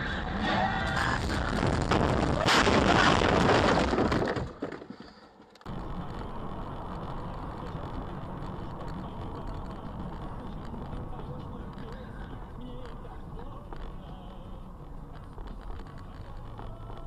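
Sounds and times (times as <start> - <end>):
car road and engine noise: 0.0 - 2.5, 5.2 - 17.0
loud rushing noise: 0.0 - 3.9.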